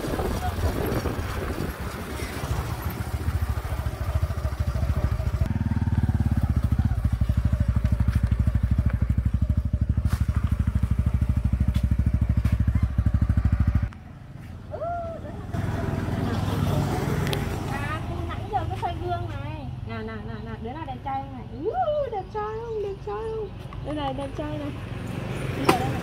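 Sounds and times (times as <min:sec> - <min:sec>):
wind noise on microphone: 0:00.0 - 0:03.3
motorcycle engine running: 0:00.0 - 0:20.0.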